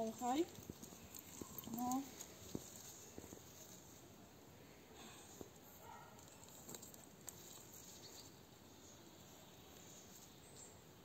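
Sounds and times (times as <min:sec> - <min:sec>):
soft ticks and rustles: 0:00.0 - 0:04.1, 0:05.3 - 0:08.4, 0:09.6 - 0:10.7.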